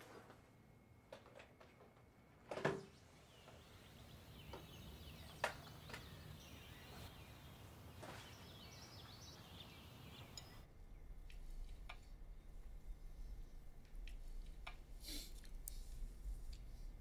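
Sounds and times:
distant birds chirping: 2.6 - 14.7
low hum: 3.0 - 17.0.

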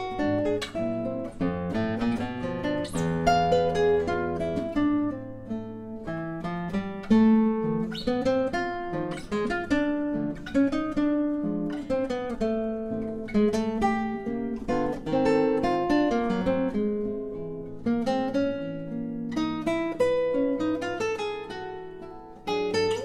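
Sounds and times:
classical guitar waltz: 0.0 - 23.0.

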